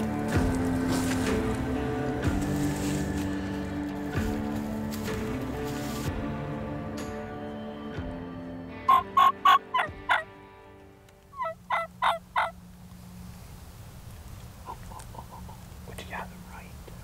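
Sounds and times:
wild turkey calling: 8.8s - 10.3s, 11.3s - 12.6s, 14.5s - 16.1s.

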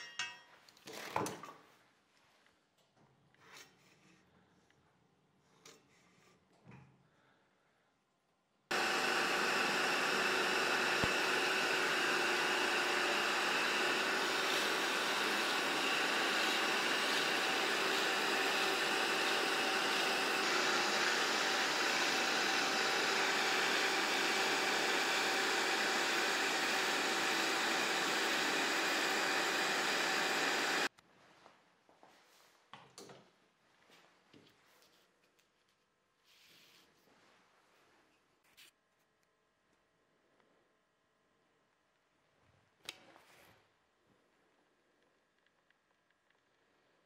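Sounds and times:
power tool boring holes: 8.7s - 30.9s.

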